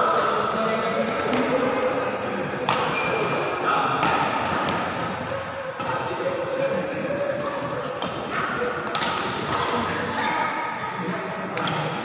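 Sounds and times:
racket hitting shuttlecock: 1.2s - 1.6s, 2.7s - 5.0s, 7.4s - 9.9s, 11.6s - 12.0s.

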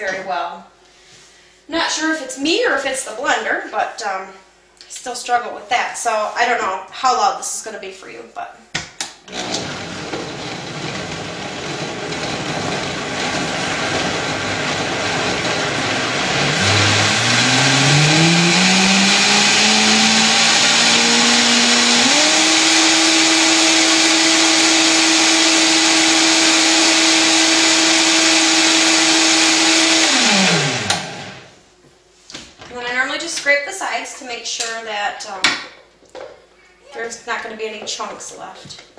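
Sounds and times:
blender running: 9.3s - 31.6s.

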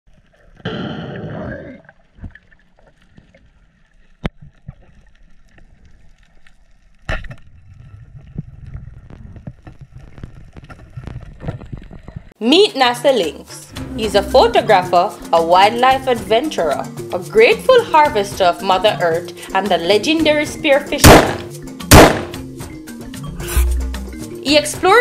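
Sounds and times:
low rumble of moving water: 1.4s - 12.3s.

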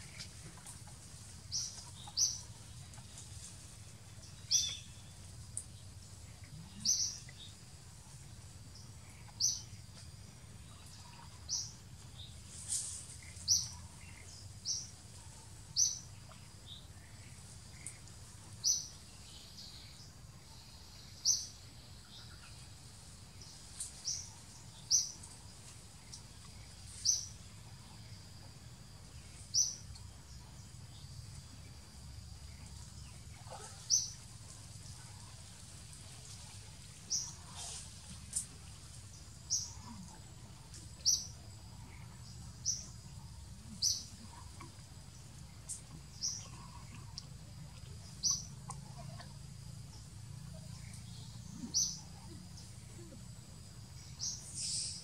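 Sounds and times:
low background noise: 0.0s - 55.0s
bird chirping: 4.2s - 5.8s, 50.6s - 53.2s.

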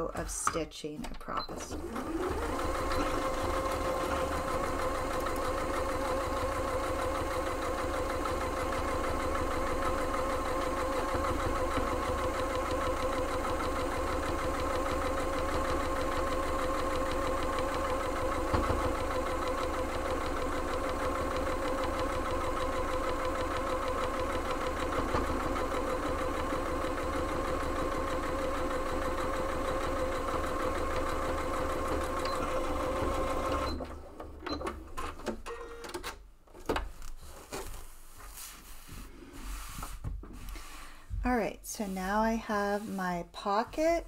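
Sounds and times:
electric sewing machine running: 1.7s - 33.8s.

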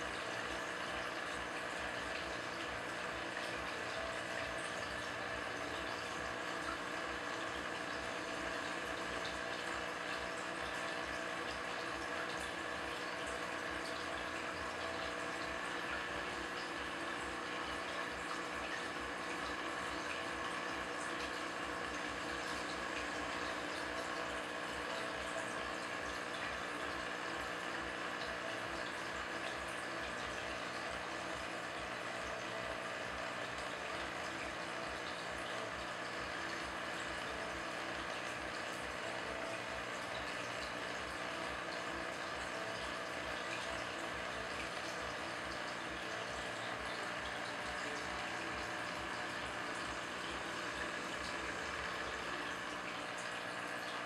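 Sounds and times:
aquarium water circulating: 0.0s - 54.0s.

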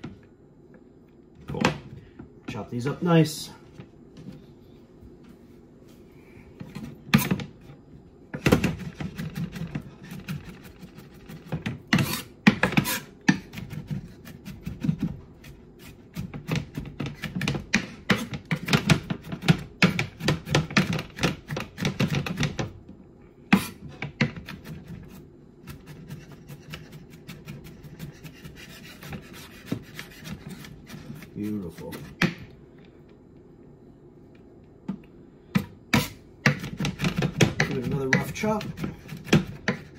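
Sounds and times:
knife chopping on cutting board: 8.4s - 22.7s, 23.5s - 32.5s, 35.6s - 39.9s.

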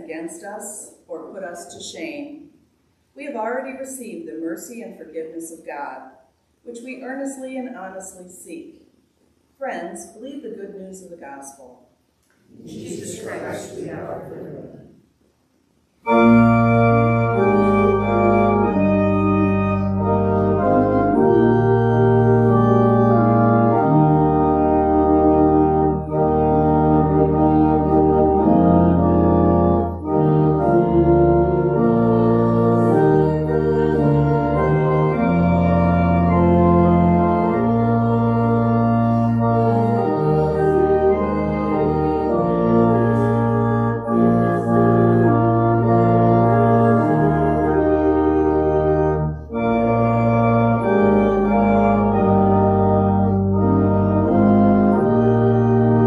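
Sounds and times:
church organ chords: 12.5s - 14.8s, 16.0s - 56.0s.

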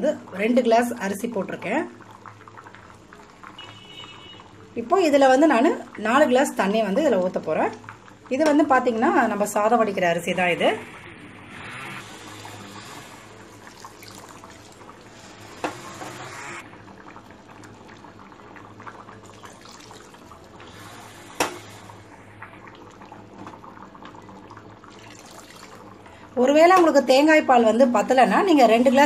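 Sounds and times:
liquid pouring and splashing: 12.0s - 26.3s.

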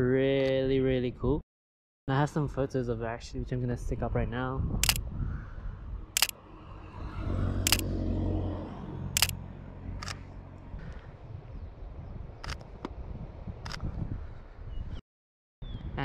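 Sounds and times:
camera shutter clicks: 4.8s - 5.0s, 6.2s - 6.4s, 7.7s - 7.9s, 9.2s - 9.4s, 10.0s - 10.2s, 12.4s - 12.6s.

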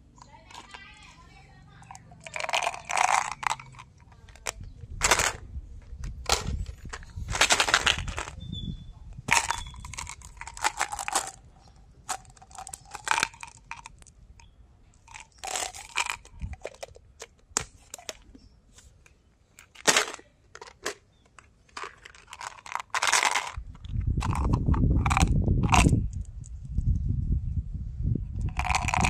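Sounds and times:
low rumble of handling: 0.1s - 19.2s
plastic containers clicking and rattling: 0.2s - 1.2s, 1.8s - 8.4s, 9.3s - 14.1s, 15.0s - 18.4s, 19.6s - 26.3s, 28.4s - 29.0s
plastic lid squeaking: 6.0s - 11.1s.

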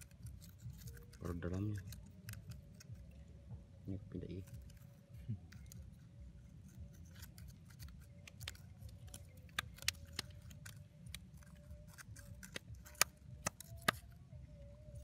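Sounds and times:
steady low rumble: 0.0s - 13.4s
stones clicking and clinking: 7.0s - 14.1s.

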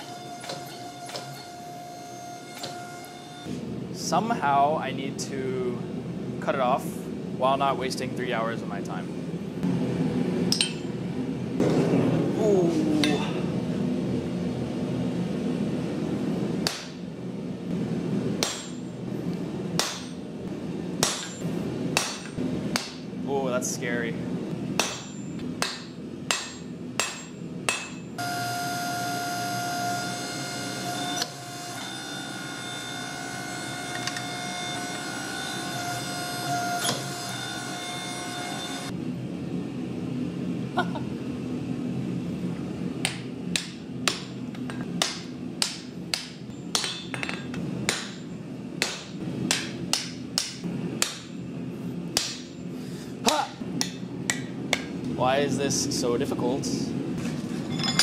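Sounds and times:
hammer striking hot steel: 10.5s - 10.9s, 16.6s - 17.0s, 18.4s - 18.9s, 19.8s - 20.2s, 21.0s - 23.0s, 24.7s - 28.1s, 43.0s - 51.4s, 52.1s - 52.6s, 53.3s - 54.9s
high metallic ringing: 10.5s - 11.0s, 24.8s - 25.4s, 57.7s - 58.0s.

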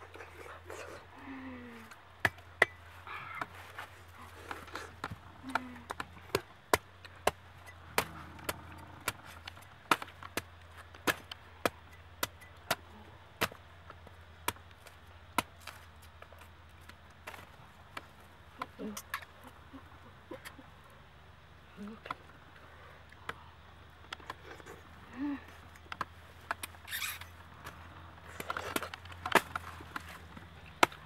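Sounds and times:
cleaver chopping fruit husks: 2.2s - 19.1s, 27.6s - 31.0s.

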